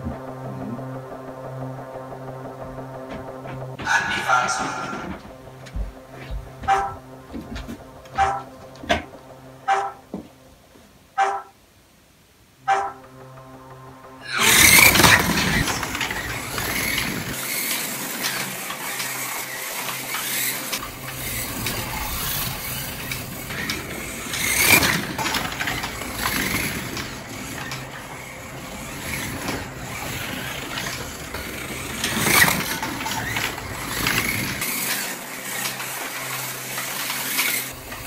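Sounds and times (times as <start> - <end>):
slot cars rattling on track: 3.7 - 5.2, 14.2 - 38.0
small electric motors whirring: 14.2 - 38.0.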